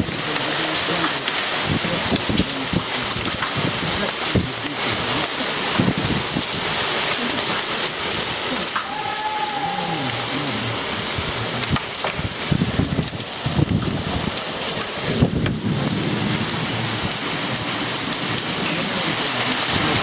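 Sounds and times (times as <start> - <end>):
hailstones ticking: 0.0 - 20.0
heavy rain hiss: 0.0 - 20.0
low rumbles: 0.0 - 20.0.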